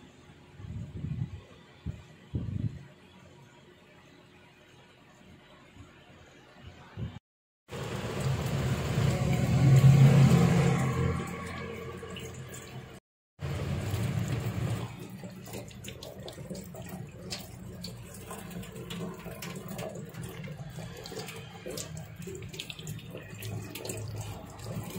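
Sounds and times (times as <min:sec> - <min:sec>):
tap water splashing into steel sink: 0:13.5 - 0:24.9.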